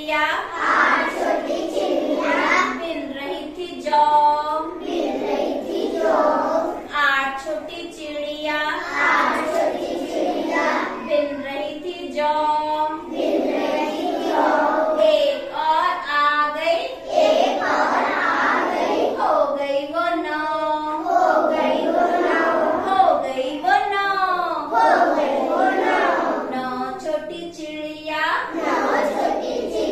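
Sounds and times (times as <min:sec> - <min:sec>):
children singing in chorus: 0:00.5 - 0:02.8, 0:04.6 - 0:06.9, 0:08.8 - 0:11.4, 0:12.8 - 0:15.5, 0:16.8 - 0:19.6, 0:21.0 - 0:23.0, 0:24.6 - 0:26.8, 0:28.4 - 0:29.9.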